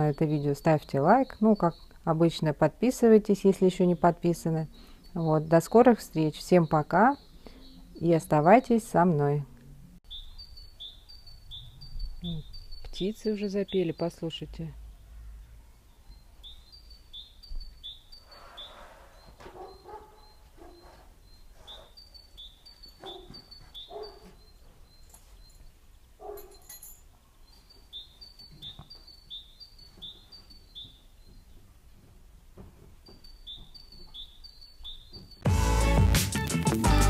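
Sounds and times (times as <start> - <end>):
lower bird calls: 10.1 - 14.2, 15.0 - 25.6.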